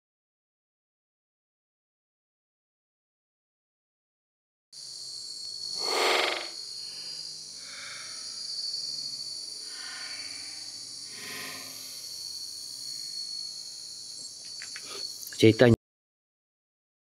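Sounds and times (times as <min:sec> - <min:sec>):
chorus of night insects: 0:04.8 - 0:15.8
louder insect call: 0:04.8 - 0:15.8.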